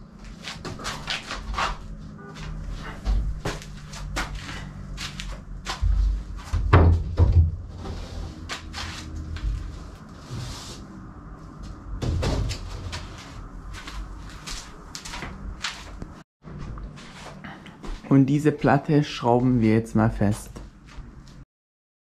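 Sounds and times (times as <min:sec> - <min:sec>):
wooden board knocks and thuds: 0:06.5 - 0:07.6.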